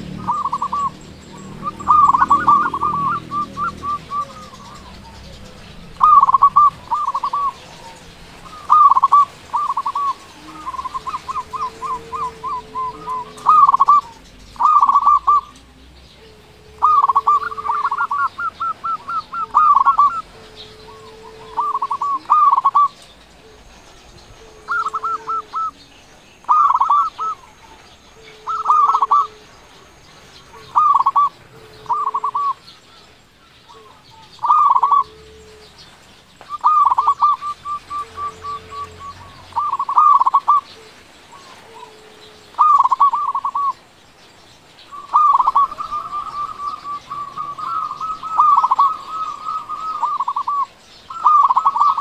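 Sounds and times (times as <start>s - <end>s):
low drawn-out bird note: 0.0s - 15.5s
dove cooing: 0.0s - 43.8s, 44.7s - 52.0s.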